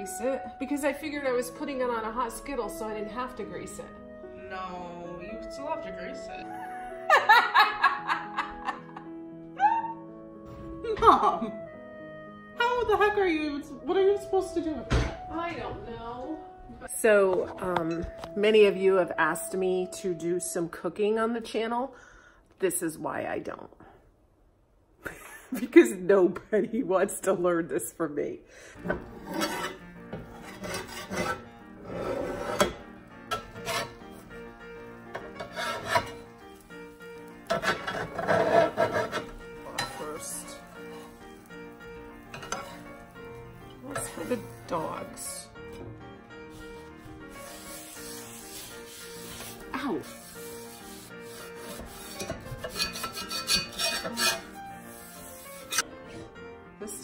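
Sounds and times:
metal spatula scraping griddle: 28.8 - 34.5, 35.1 - 45.5, 46.5 - 55.9.

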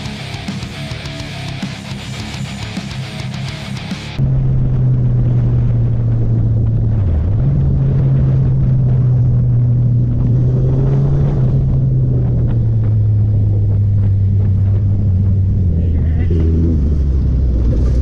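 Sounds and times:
motorcycle engine running: 0.0 - 18.0
wind rumble on microphone: 4.2 - 18.0.

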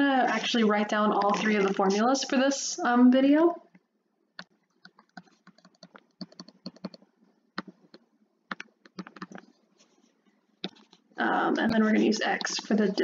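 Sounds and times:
stylus tapping on touchscreen: 3.7 - 9.5.

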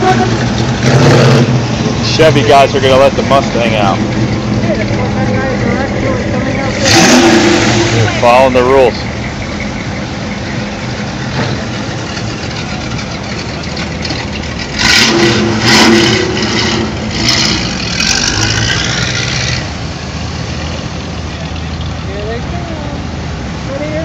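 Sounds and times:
louder car engine passing: 0.0 - 9.1, 14.6 - 21.0
car engine rumbling: 0.0 - 24.0.

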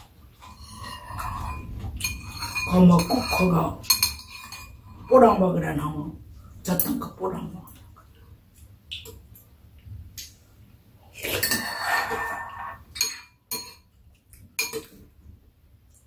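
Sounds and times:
spoons clinking on ceramic bowls: 0.4 - 5.4, 11.3 - 13.9, 14.6 - 15.0.

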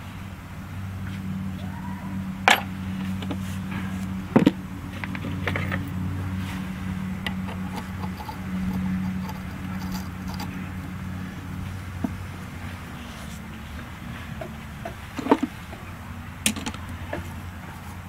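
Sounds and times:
steady low hum: 0.0 - 18.0
metal parts clanking: 7.2 - 10.6.

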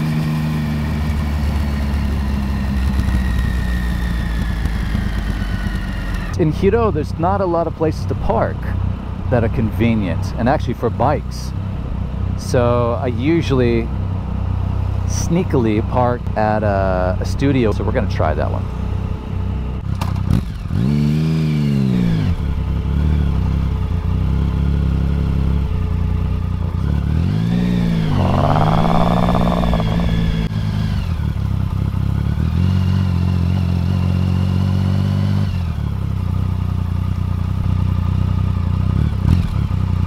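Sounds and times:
motorcycle engine running: 22.3 - 30.5.

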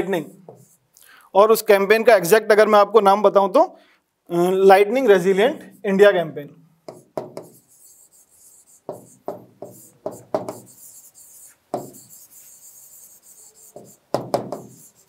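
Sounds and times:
pen writing on board: 0.5 - 0.8, 6.9 - 15.0.

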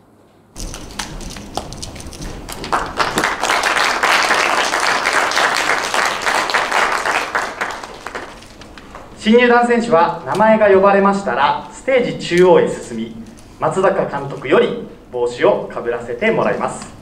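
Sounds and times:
audience applause: 0.7 - 9.1.

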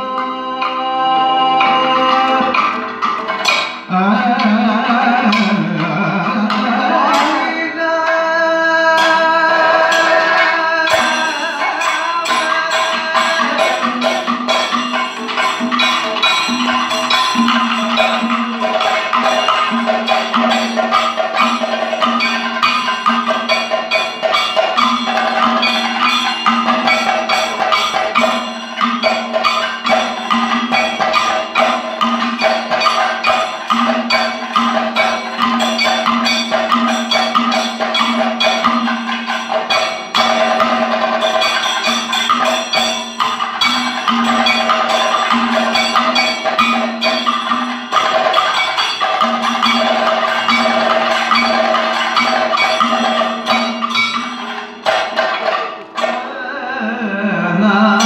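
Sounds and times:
drums in fast rhythm: 0.0 - 58.0
ringing metallic tone: 8.9 - 58.0.

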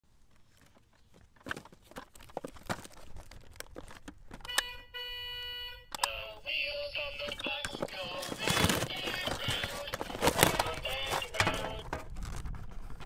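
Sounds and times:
packaging clicks and rustles: 0.4 - 4.6, 7.0 - 13.0
electronic toy tune: 4.5 - 6.0.

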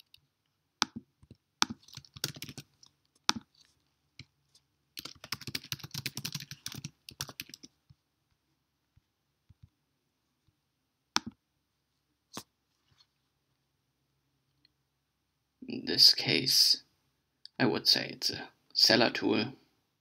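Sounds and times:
typing on computer keyboard: 0.8 - 3.4, 5.0 - 7.7.

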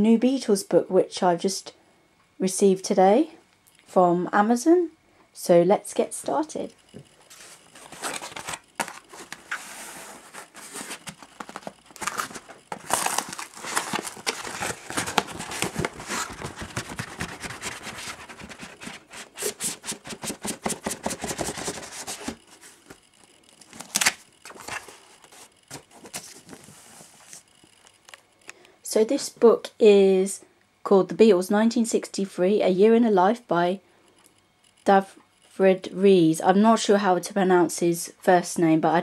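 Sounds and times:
cardboard mailer being torn: 7.8 - 22.4, 23.6 - 26.5.

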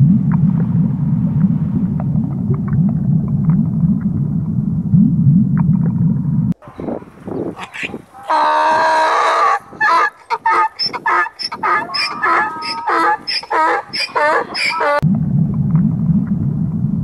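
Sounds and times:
donkey braying: 6.6 - 15.0.

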